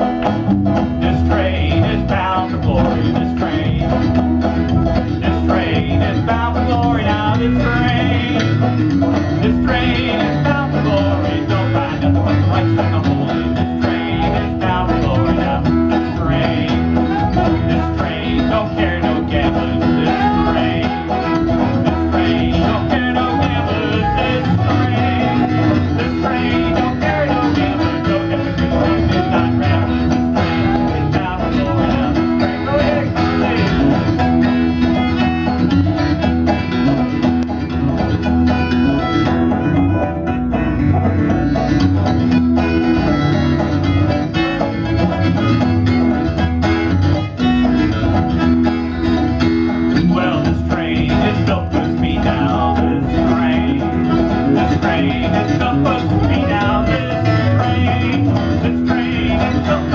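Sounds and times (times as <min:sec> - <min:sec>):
picked banjo: 0:00.0 - 0:59.9
strummed acoustic guitar: 0:00.0 - 0:59.9
soprano saxophone melody: 0:38.8 - 0:41.5.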